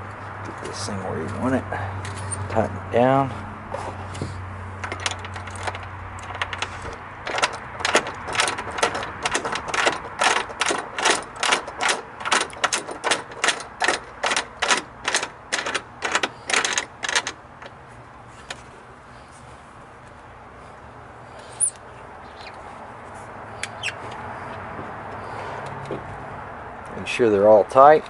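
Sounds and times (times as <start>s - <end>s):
sharp clicks of hardware tightening: 4.8s - 17.8s.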